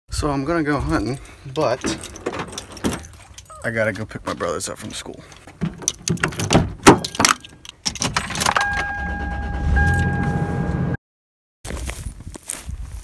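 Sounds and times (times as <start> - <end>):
keys jangling in car door lock: 1.0 - 3.6, 5.8 - 9.0.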